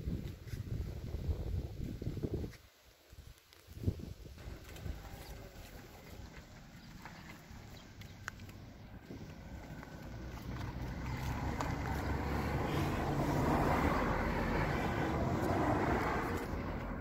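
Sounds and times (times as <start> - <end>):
vehicle engine rumble: 3.8 - 17.0
tyre noise rushing: 4.3 - 17.0.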